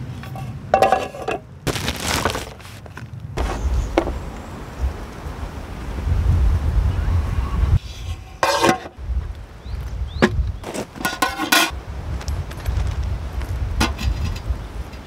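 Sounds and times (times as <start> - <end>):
metal cookware clinks and knocks: 0.2 - 1.4, 11.0 - 11.7
wind rumble on microphone: 2.9 - 15.0.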